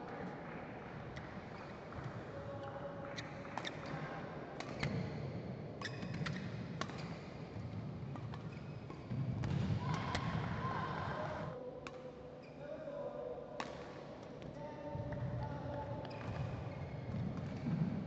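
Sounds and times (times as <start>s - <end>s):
rackets hitting shuttlecock: 4.6s - 5.0s
shoes squeaking on court: 8.1s - 9.3s, 16.0s - 17.8s.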